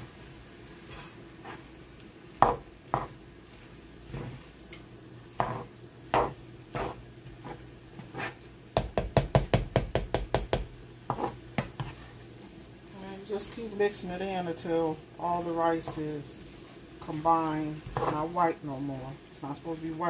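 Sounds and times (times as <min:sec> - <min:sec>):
faint sizzle: 0:00.0 - 0:20.0
spatula scraping and knocking pan: 0:02.4 - 0:03.2, 0:04.1 - 0:04.5, 0:05.4 - 0:12.2, 0:15.4 - 0:18.4.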